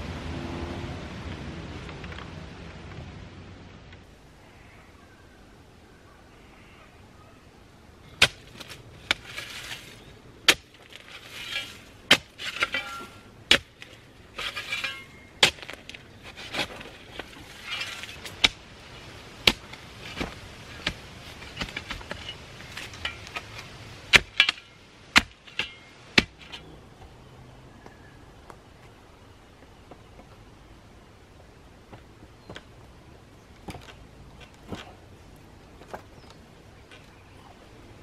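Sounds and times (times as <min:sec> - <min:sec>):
scraping or rustling: 0:08.5 - 0:10.1, 0:10.8 - 0:24.7.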